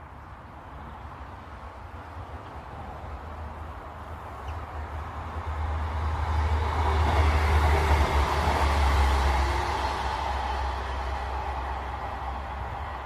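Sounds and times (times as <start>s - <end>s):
vehicle passing by: 5.3s - 13.0s.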